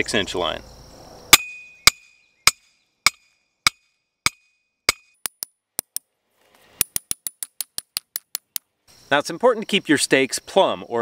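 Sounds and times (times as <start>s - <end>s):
sledgehammer striking metal stake: 1.3s - 6.0s, 6.8s - 8.6s.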